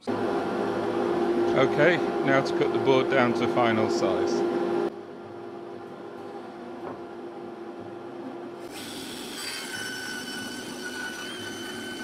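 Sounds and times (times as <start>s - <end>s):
table saw cutting wood: 8.6s - 12.0s
table saw high whine: 8.6s - 12.0s.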